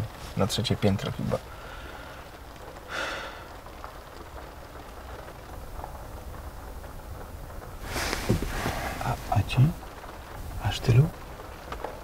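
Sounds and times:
faint hiss: 0.0 - 3.8, 7.7 - 11.5.

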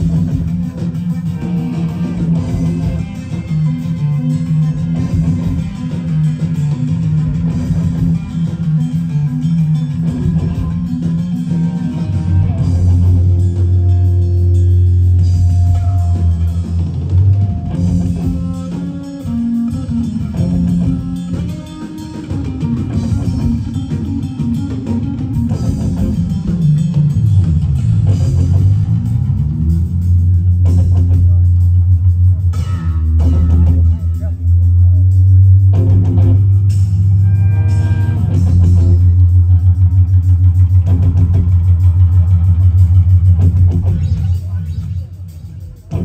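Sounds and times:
live rock band playing: 0.0 - 46.0
deep bass guitar note: 10.0 - 18.9, 25.4 - 44.2.

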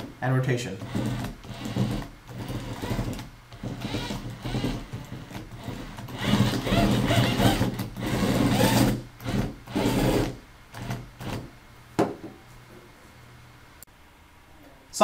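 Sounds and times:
electric motors whining: 0.8 - 11.4.

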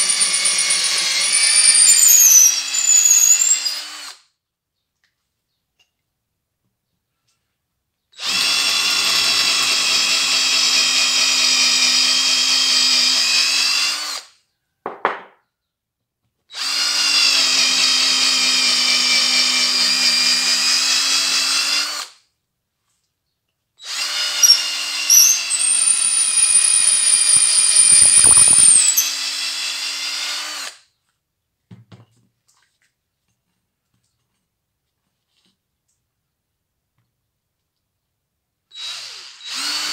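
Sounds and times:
power drill boring into wood: 0.0 - 4.2, 8.2 - 14.3, 16.5 - 22.2, 23.8 - 30.8, 38.7 - 39.9
high squeal: 1.2 - 3.7
knock: 14.9 - 15.4.

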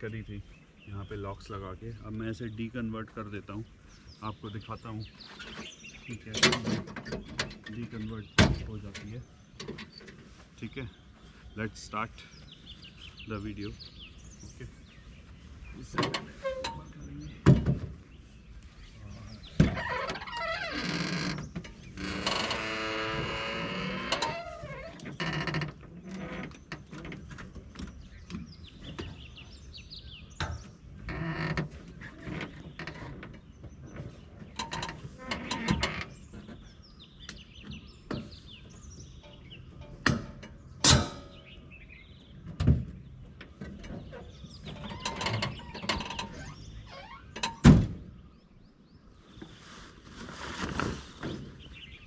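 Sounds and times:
wavering creak: 19.6 - 27.4, 31.0 - 33.4, 34.5 - 36.4, 44.0 - 47.5.

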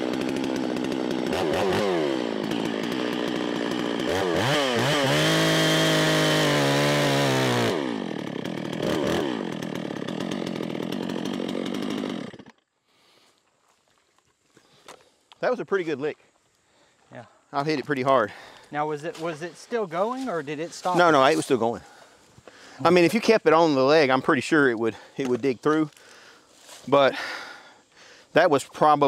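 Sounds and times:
chainsaw revving: 0.0 - 13.3, 19.2 - 23.9.

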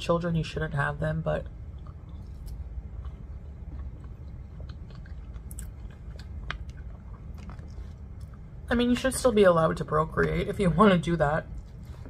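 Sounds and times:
person chewing food: 1.6 - 8.6.

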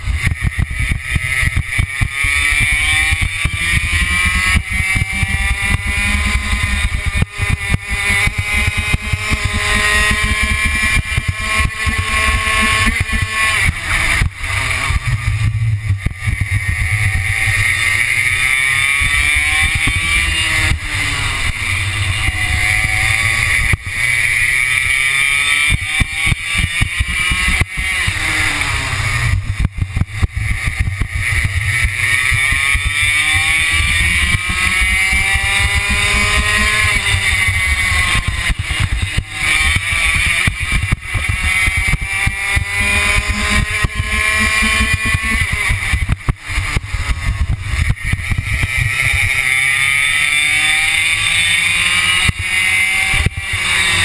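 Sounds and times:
racing kart engine revving: 0.0 - 54.0
low rumble: 9.1 - 24.0.

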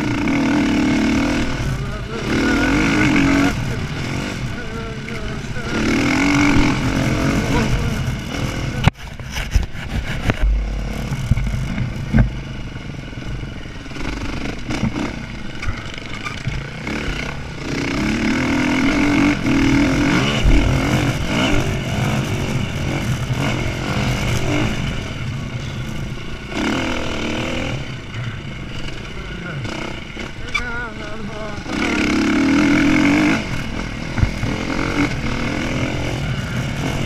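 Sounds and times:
dirt bike engine revving: 0.0 - 37.0
knocks and clatter over bumps: 3.0 - 26.8, 31.8 - 37.0.

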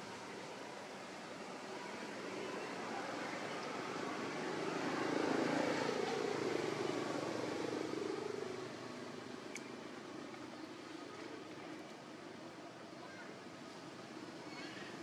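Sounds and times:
engine passing: 0.0 - 9.5.

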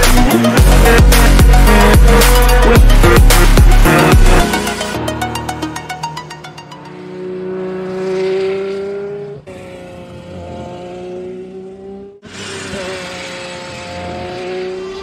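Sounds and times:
electronic music: 0.0 - 7.4
race car engine high note: 0.1 - 15.0.

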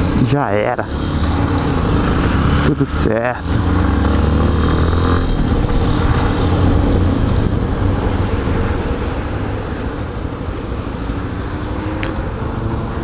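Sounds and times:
motorcycle engine running: 0.8 - 11.3
wind rush on microphone: 3.4 - 13.0.

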